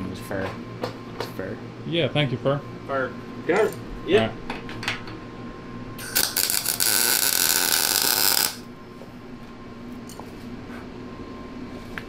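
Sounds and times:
electric welding arc: 6.0s - 8.7s.

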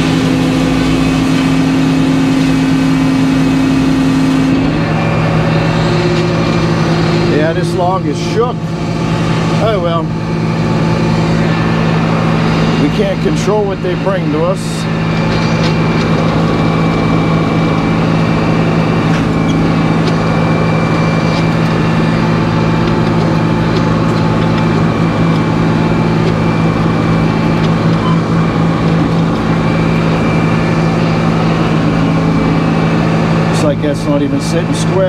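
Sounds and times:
sawmill machine drone: 0.0s - 35.0s.

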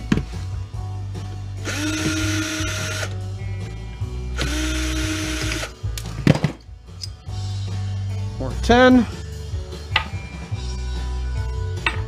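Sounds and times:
cordless drill spinning: 1.6s - 3.1s, 4.4s - 5.7s.

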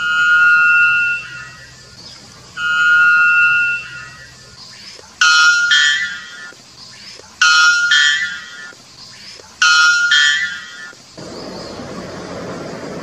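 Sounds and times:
bird two-note song: 0.0s - 4.4s, 5.2s - 6.6s, 7.4s - 8.8s, 9.6s - 11.0s.

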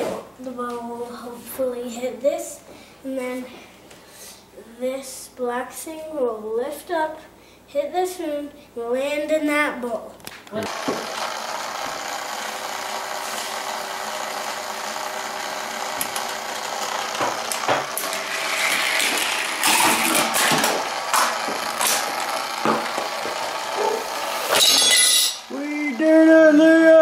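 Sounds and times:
toy motor whirring: 10.6s - 27.0s
sharp ringing hit: 24.6s - 25.5s.

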